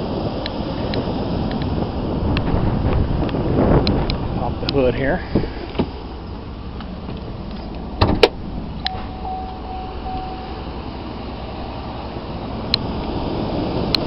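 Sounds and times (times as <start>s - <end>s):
hood latch clunks: 5.4s - 9.6s
faint chime-like tone: 8.9s - 10.8s.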